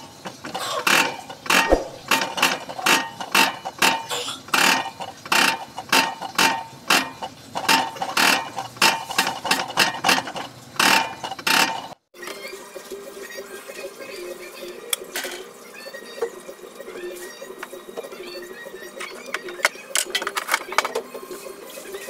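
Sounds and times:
injector nozzle popping and spraying: 1.6s - 2.2s.

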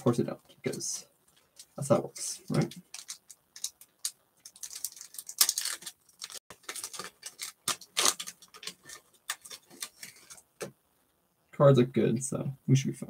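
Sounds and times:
foil wrapper crinkling: 2.5s - 10.4s.

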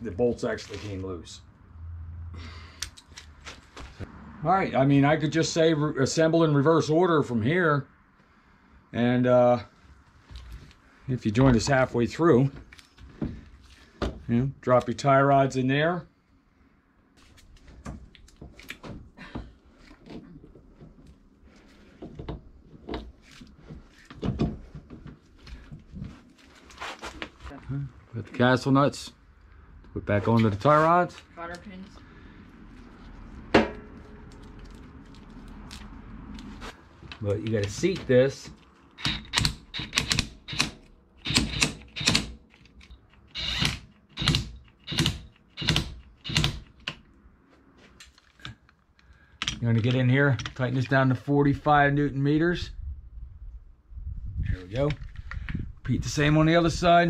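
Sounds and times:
impact wrench bursts: 39.0s - 42.4s, 43.1s - 46.8s.

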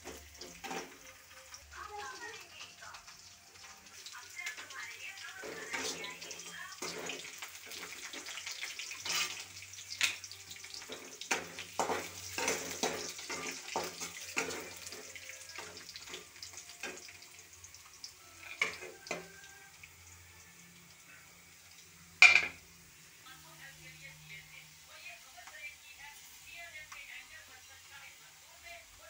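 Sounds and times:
frying sizzle: 0.0s - 29.0s
spatula scraping metal wok: 5.4s - 9.6s, 10.8s - 16.1s.

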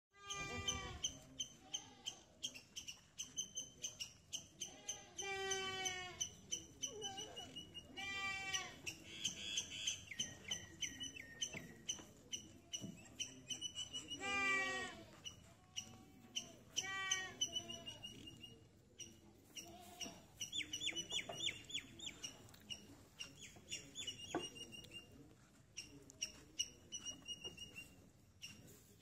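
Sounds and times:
goat bleating: 0.2s - 2.2s, 4.6s - 6.3s, 7.9s - 8.9s, 14.1s - 16.0s, 16.6s - 18.1s, 19.5s - 20.3s.

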